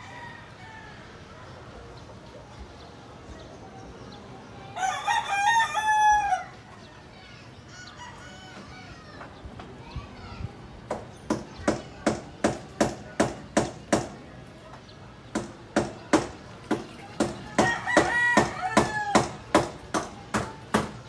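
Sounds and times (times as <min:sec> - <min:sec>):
rooster crowing: 0:00.0 - 0:01.1, 0:04.8 - 0:06.6, 0:17.5 - 0:19.4.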